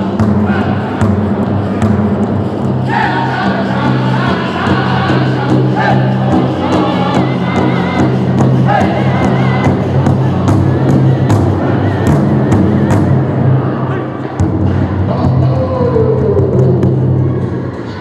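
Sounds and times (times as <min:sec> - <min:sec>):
large drum beating: 0:00.0 - 0:13.6
group singing high-pitched: 0:02.8 - 0:12.9.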